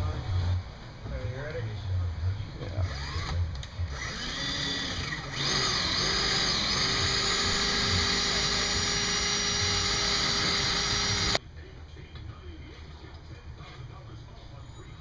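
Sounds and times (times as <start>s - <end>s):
drill whining through metal: 2.8s - 11.4s.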